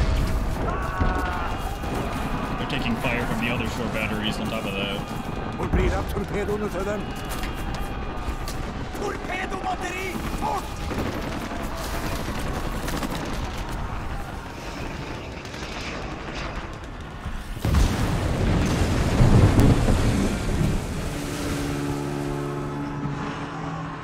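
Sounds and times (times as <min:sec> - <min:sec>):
steady rushing noise: 0:00.0 - 0:24.0
heavy explosion boom: 0:17.6 - 0:21.9.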